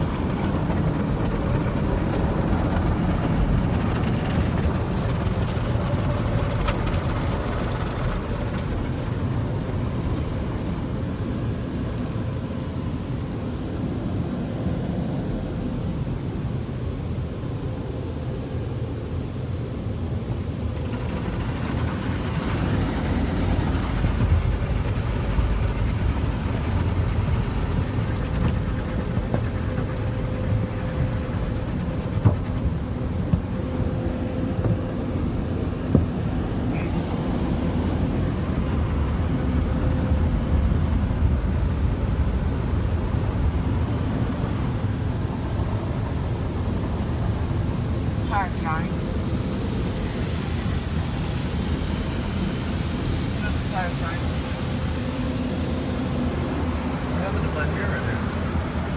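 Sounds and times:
rumbling machinery hum: 0:00.0 - 0:58.9
cloth brushes washing car: 0:20.4 - 0:33.6
water spraying: 0:20.5 - 0:33.6, 0:48.4 - 0:58.9.

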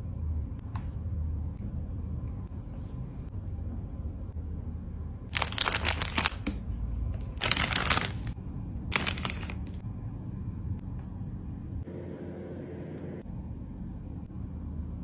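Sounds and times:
paper and plastic crinkling: 0:05.3 - 0:06.5, 0:07.3 - 0:09.8.

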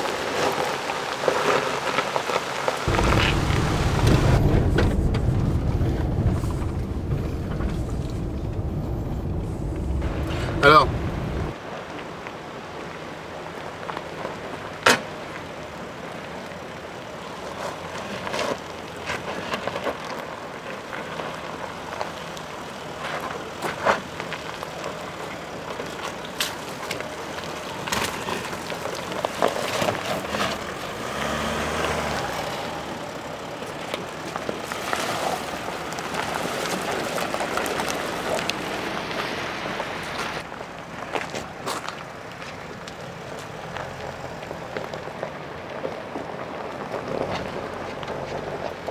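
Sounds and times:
tyres crunching on gravel: 0:00.0 - 0:48.9
low engine note: 0:02.9 - 0:11.6.

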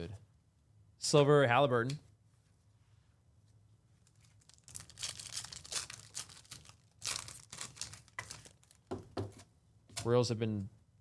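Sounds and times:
foil wrapper tearing and crinkling: 0:04.1 - 0:08.9.

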